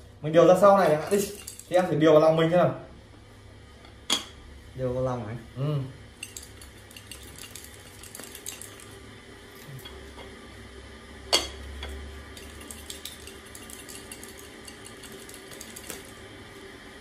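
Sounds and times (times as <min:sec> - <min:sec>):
counters rattling in a bowl: 0:01.0 - 0:01.9, 0:06.2 - 0:09.0, 0:12.3 - 0:16.2.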